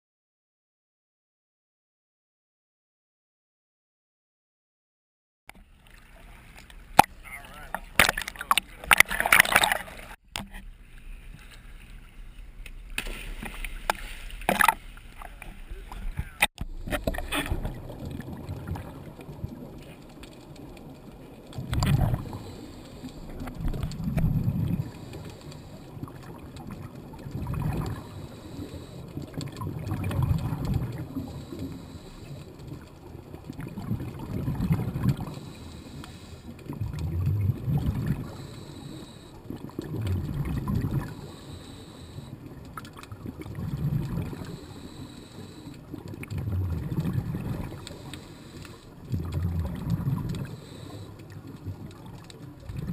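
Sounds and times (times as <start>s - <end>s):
exhaled bubbles rumbling: 12.8s - 52.9s
regulator breathing underwater: 21.7s - 26.2s, 27.6s - 29.4s, 30.2s - 32.7s, 34.6s - 37.0s, 37.6s - 42.5s, 43.6s - 51.4s.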